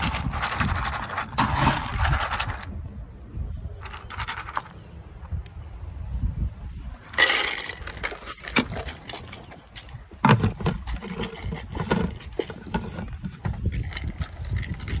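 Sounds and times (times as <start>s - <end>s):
dry kibble rattling: 0.0s - 2.8s, 3.8s - 4.8s, 7.0s - 15.0s.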